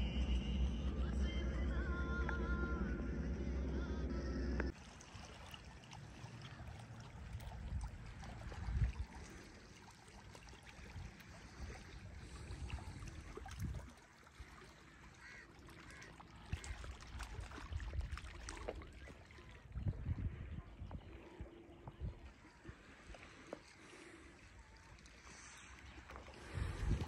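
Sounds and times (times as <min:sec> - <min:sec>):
faint water wash: 0:00.0 - 0:27.0
wind rumbling on microphone: 0:07.4 - 0:09.3, 0:10.8 - 0:13.9, 0:16.6 - 0:18.5, 0:19.6 - 0:22.8, 0:26.4 - 0:27.0.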